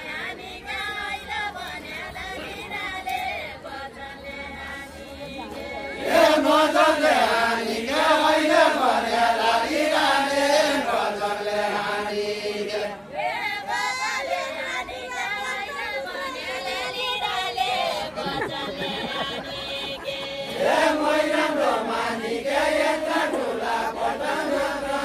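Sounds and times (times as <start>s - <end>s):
men singing in unison: 5.7s - 13.1s, 18.1s - 25.0s.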